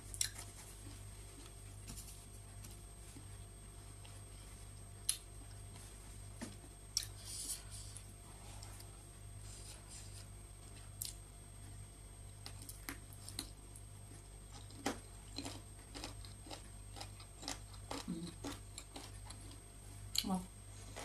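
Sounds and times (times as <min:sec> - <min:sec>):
steady low hum: 0:00.0 - 0:21.0
person chewing food: 0:00.1 - 0:01.6, 0:12.4 - 0:21.0.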